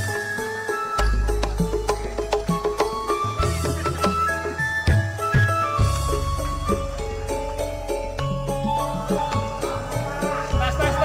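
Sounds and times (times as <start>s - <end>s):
instrumental melody of held notes: 0.0s - 11.0s
steady low bass: 5.8s - 11.0s.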